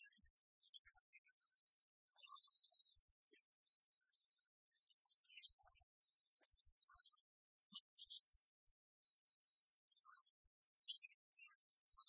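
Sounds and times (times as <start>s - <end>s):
faint high-pitched chirps: 0.0s - 12.0s.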